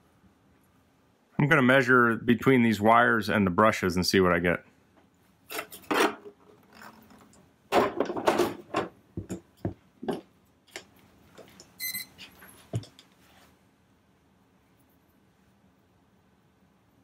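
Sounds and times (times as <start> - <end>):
plastic parts knocking and clicking: 6.2 - 10.9
short high beep: 11.8 - 12.1.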